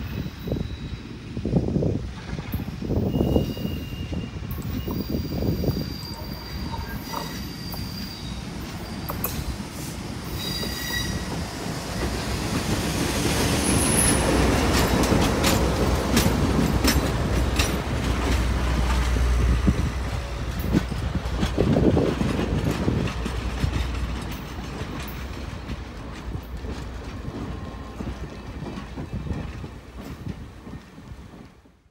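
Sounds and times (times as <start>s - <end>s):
diesel locomotive engine rumble: 0.0s - 31.9s
high wheel squeal: 2.9s - 9.6s, 10.3s - 12.1s
wheels clicking over rail joints: 11.3s - 31.8s.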